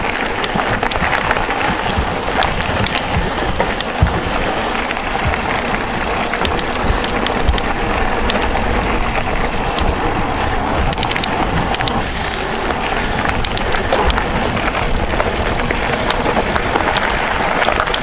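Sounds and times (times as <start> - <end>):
stones clicking and rattling: 0.0 - 10.2, 10.8 - 18.0
bike tyres rumbling on gravel: 0.0 - 18.0.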